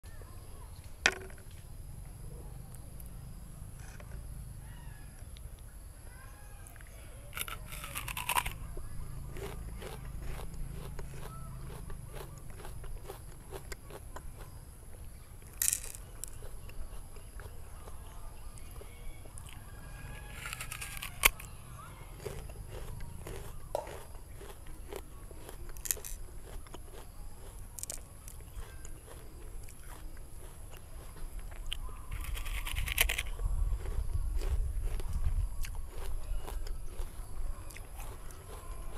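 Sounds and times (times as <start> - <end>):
apple crunching: 6.6 - 38.9.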